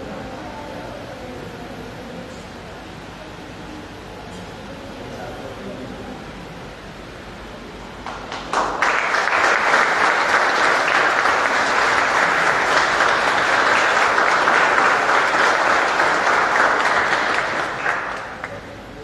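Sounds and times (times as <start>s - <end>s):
audience applauding: 8.0s - 18.8s.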